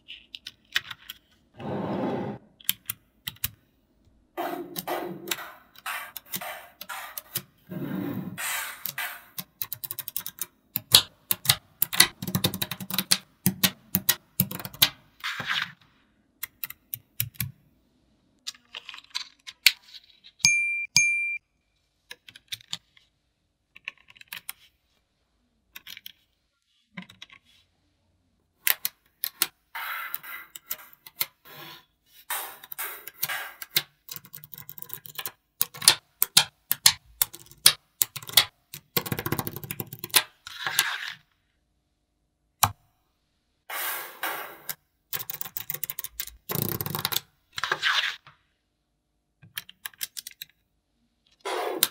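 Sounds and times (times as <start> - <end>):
magnetic balls clicking together: 45.1 - 47.2.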